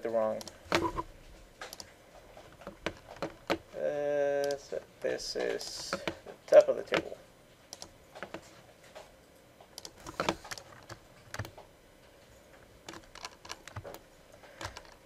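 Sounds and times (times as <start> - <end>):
computer mouse and keyboard clicks: 0.2 - 1.0, 1.6 - 3.7, 4.4 - 11.7, 12.6 - 15.0.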